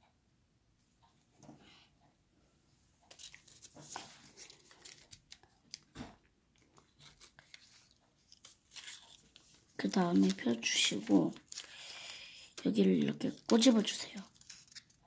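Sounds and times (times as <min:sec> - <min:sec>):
paper crinkling as it is folded: 0:03.1 - 0:05.9, 0:06.6 - 0:15.0.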